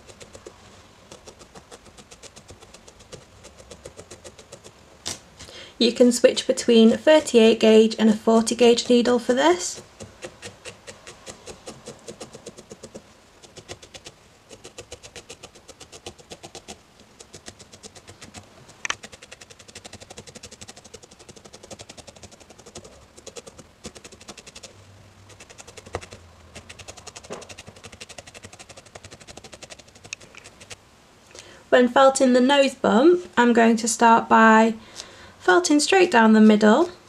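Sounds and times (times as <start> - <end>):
felting needle poking wool: 0.0 - 5.2, 8.4 - 24.7, 25.3 - 30.8.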